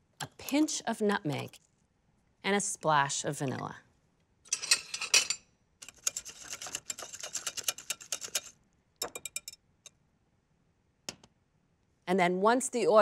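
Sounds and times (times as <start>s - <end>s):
wire whisk ticking against glass bowl: 5.9s - 9.6s.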